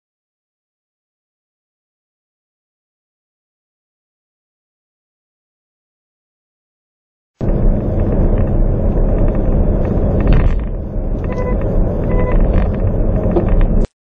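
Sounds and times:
car road and wind rumble: 7.4 - 13.9
short electronic beeps: 11.2 - 13.5.

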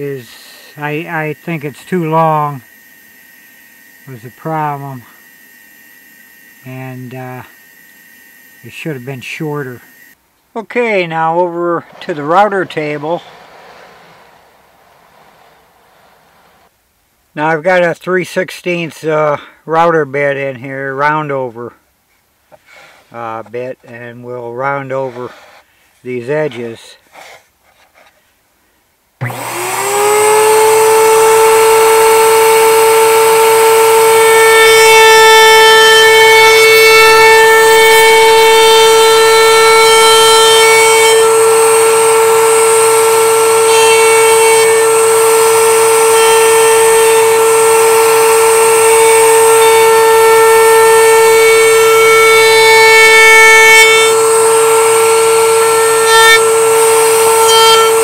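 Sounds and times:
router whining: 10.8 - 16.7, 29.2 - 58.0.

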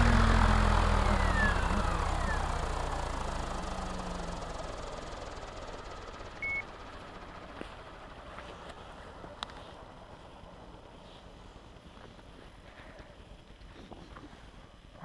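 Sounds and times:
electric motor whine spooling down: 0.0 - 4.6
short high beep: 6.4 - 6.6.

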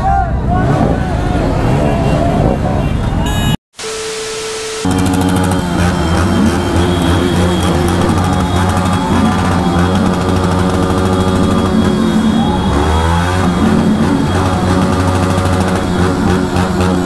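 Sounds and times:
motorcycle engine running: 4.9 - 17.0.

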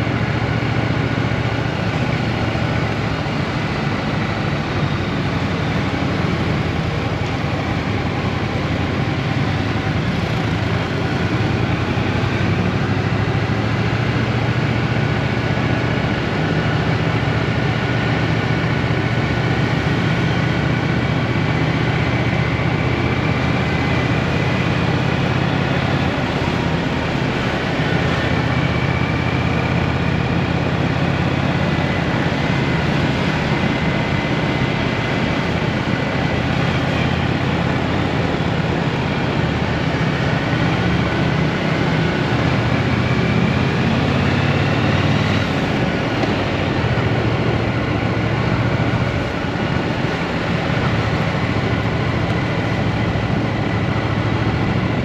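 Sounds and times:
motorcycle engine cruising: 0.0 - 55.0
wind and road noise: 0.0 - 55.0.

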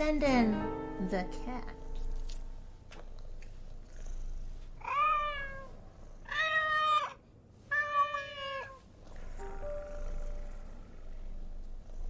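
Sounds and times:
cat meowing: 4.8 - 5.7, 6.3 - 8.8.

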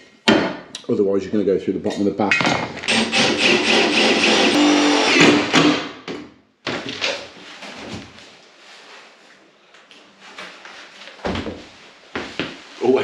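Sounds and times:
cordless drill driving screws: 2.9 - 5.5.

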